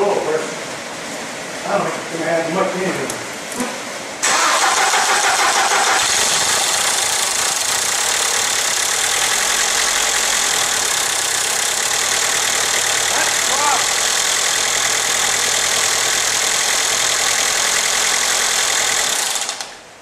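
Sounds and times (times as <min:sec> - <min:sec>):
car engine starting and idling: 0:04.2 - 0:19.8.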